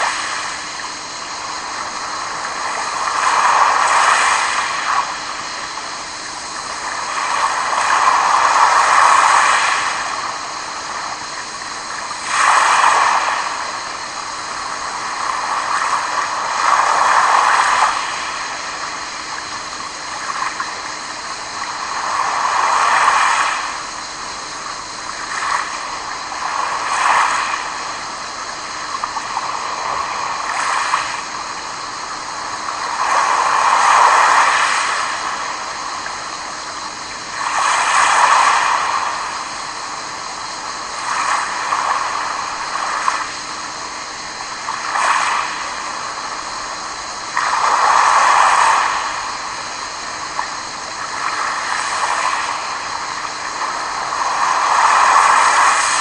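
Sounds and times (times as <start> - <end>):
waves washing onto pebbles: 1.4 - 5.5, 6.5 - 10.4, 12.0 - 13.9, 21.5 - 24.3, 25.1 - 36.2, 36.8 - 43.6, 44.5 - 56.0.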